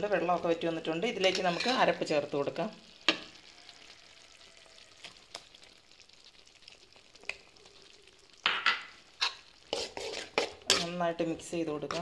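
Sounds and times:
curry sizzling in a pan: 0.0s - 12.0s
spoon scraping a pan: 1.0s - 2.2s, 8.4s - 12.0s.

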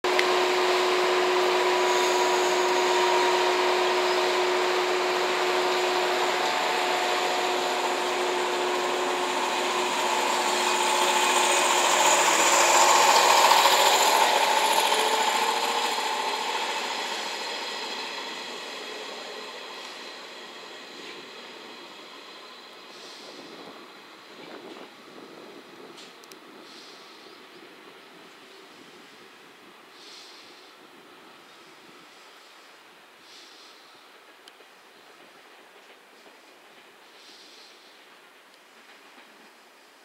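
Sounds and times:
electric train hum: 0.0s - 40.0s
train motor whine: 0.1s - 25.4s.

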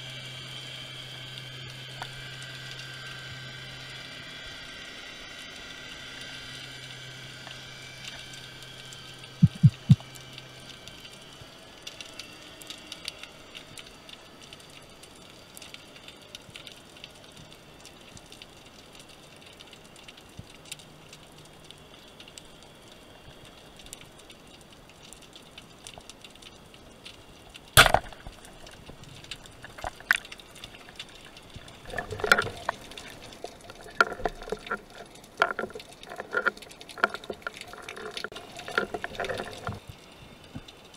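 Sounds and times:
speargun firing crack: 27.8s - 28.4s.

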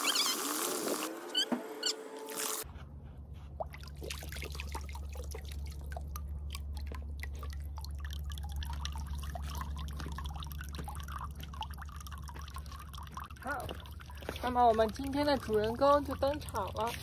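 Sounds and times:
steady low hum: 2.6s - 17.0s
water dripping into pool: 3.6s - 17.0s.

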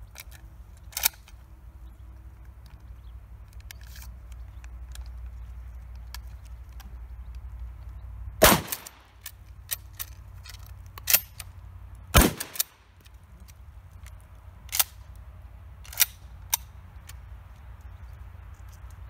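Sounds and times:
gun handling clicks: 0.1s - 17.9s
shotgun shots with echo: 8.4s - 9.1s, 12.2s - 12.8s.

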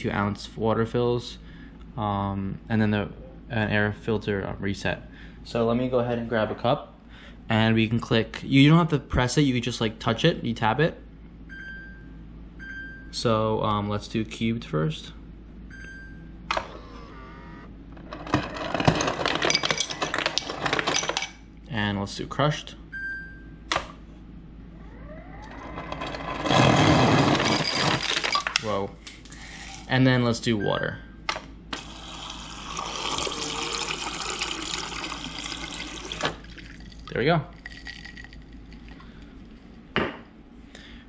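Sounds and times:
ice dispenser motor hum: 24.8s - 28.7s, 31.7s - 39.4s
ice cubes clattering into glass: 27.1s - 28.6s, 37.6s - 38.9s.

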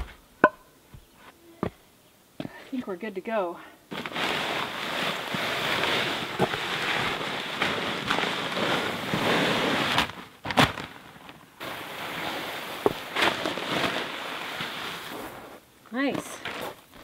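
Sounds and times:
gravel poured onto ground: 3.9s - 15.6s.

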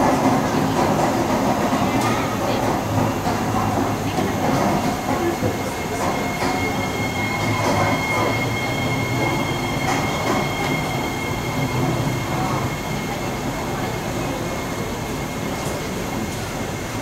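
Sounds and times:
train running noise: 0.0s - 17.0s
high-pitched squeal: 5.7s - 13.4s.

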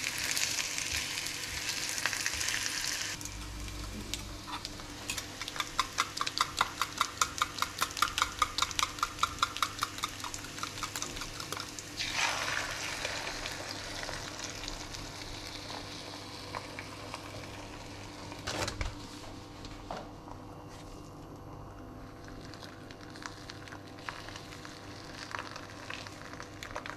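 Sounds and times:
egg sizzling in frying pan: 0.0s - 18.4s, 22.5s - 26.9s
whisk beating eggs in steel bowl: 5.4s - 12.4s.

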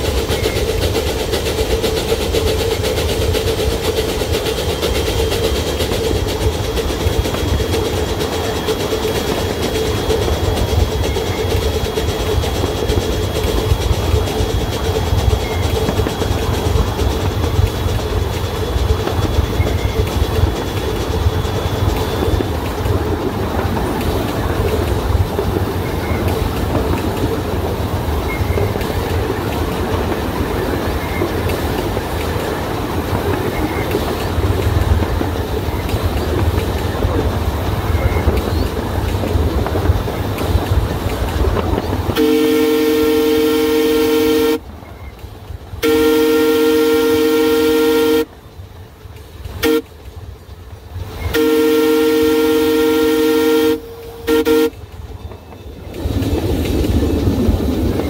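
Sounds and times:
locomotive rumbling on track: 0.0s - 58.0s
train horn blasts: 42.1s - 44.6s, 45.8s - 48.4s, 49.6s - 50.0s, 51.3s - 54.9s.

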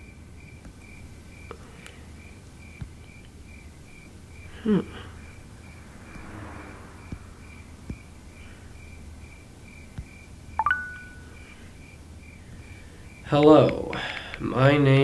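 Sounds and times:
crickets chirping: 2.2s - 4.6s
short bright phone chime: 10.6s - 11.3s.

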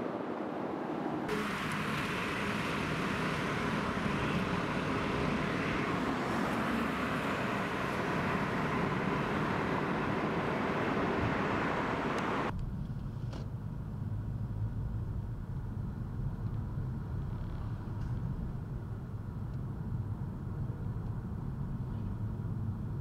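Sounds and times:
low vehicle rumble: 0.2s - 23.0s
road traffic tyre hiss: 1.3s - 14.6s.

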